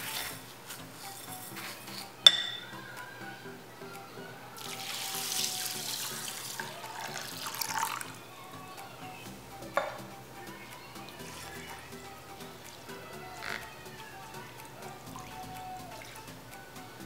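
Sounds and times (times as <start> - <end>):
glass clink: 2.2 - 2.7
water pouring into a bowl: 4.6 - 8.2.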